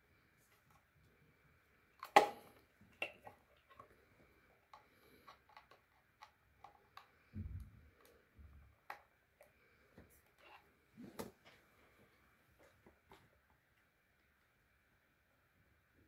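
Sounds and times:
dull low bump: 7.4 - 7.8.

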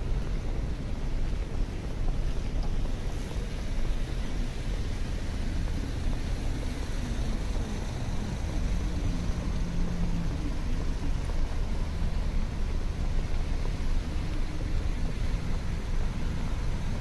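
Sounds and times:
city street traffic rumble: 0.0 - 17.0
passing vehicle hum: 0.0 - 17.0.

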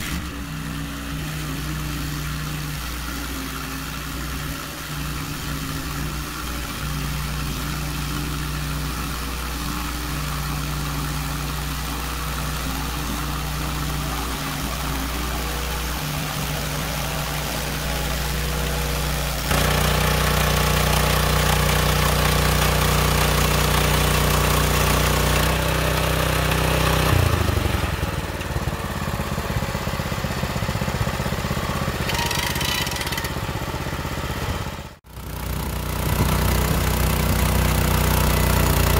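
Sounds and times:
small gasoline engine running: 0.0 - 38.9
winch ratchet clicks: 32.0 - 33.4.

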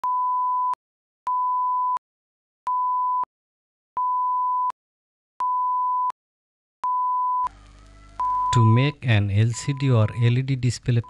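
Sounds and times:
steady electronic beeps: 8.1 - 11.0.

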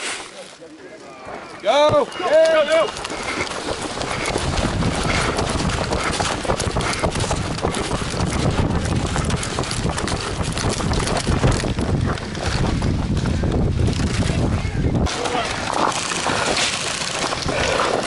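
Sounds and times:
running footsteps on gravel: 1.8 - 18.0
wind rumble on microphone: 2.9 - 15.7.

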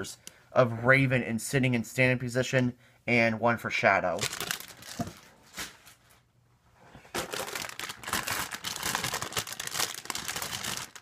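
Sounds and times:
plastic bag crinkling: 4.2 - 5.8, 7.1 - 11.0.

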